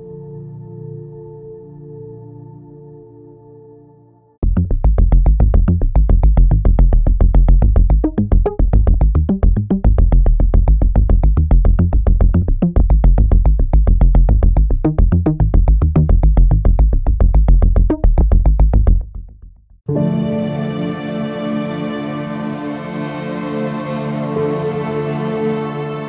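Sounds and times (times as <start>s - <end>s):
heavy bass: 4.4s - 19.4s
synthesizer arpeggio: 19.9s - 26.0s.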